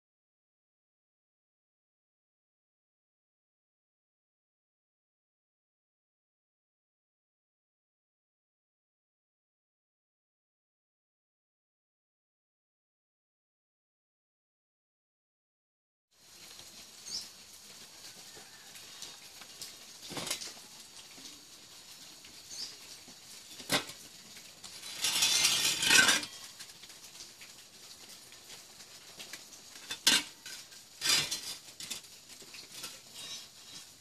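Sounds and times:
metal scraping rattle: 20.1 - 20.5, 23.5 - 26.5, 29.8 - 34.0.

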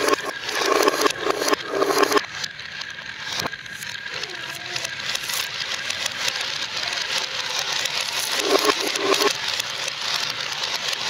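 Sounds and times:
marbles rolling down wooden run: 4.8 - 11.0.

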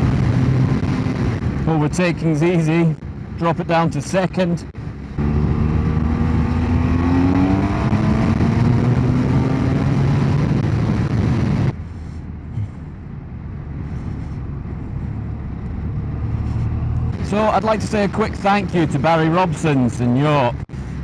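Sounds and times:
motorcycle engine accelerating: 0.0 - 1.6, 4.8 - 11.8, 14.6 - 18.0
wind rush: 0.0 - 2.0, 4.8 - 17.9
road noise: 0.0 - 21.0.

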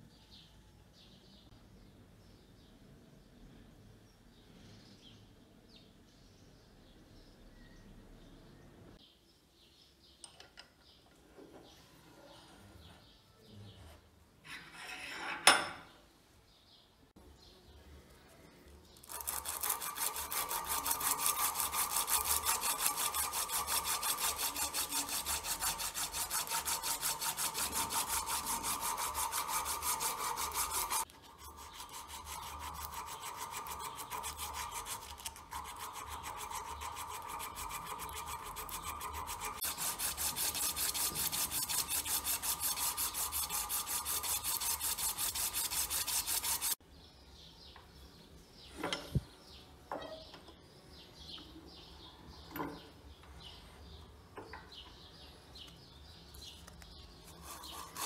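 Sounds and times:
abrasive cloth rasping on metal: 19.0 - 46.8, 57.2 - 58.0.

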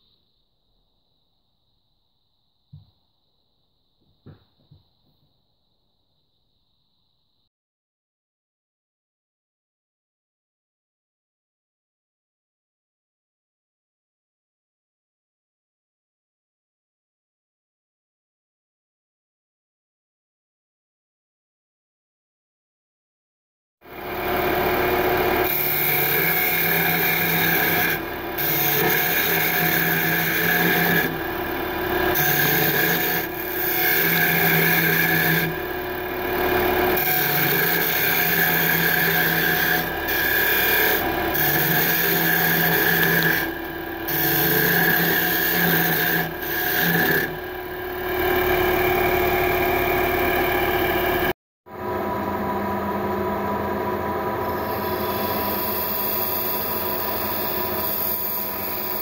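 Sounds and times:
lathe motor humming: 24.0 - 59.0
turning tool scraping wood: 25.4 - 35.7, 36.9 - 47.4, 54.6 - 59.0.

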